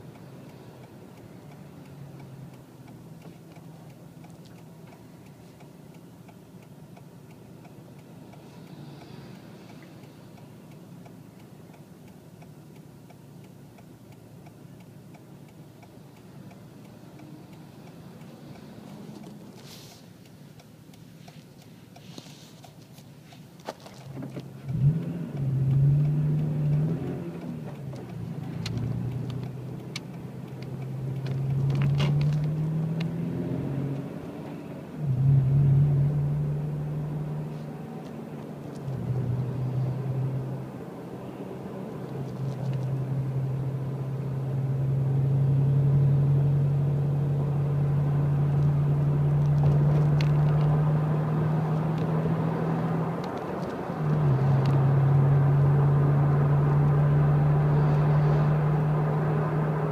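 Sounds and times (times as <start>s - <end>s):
vehicle engine and tyre hum: 0.0s - 59.9s.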